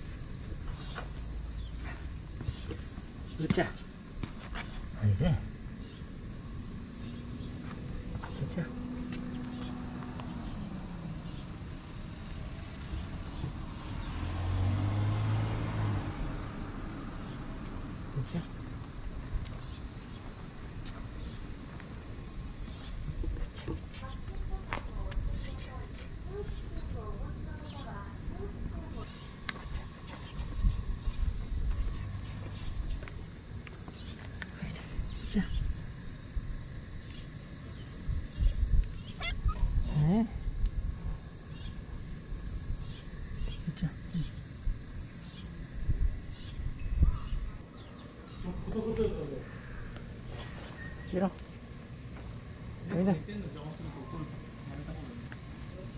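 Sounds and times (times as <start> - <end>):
insects droning: 0.0 - 55.9
wind rumbling on microphone: 30.4 - 32.0, 38.0 - 43.1, 45.8 - 47.6.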